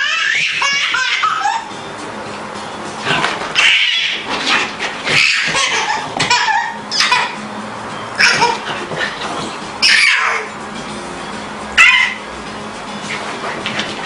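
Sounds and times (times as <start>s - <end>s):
baby squealing with laughter: 0.0s - 1.7s, 3.5s - 4.3s, 5.1s - 7.4s, 8.2s - 8.6s, 9.8s - 10.6s, 11.8s - 12.2s.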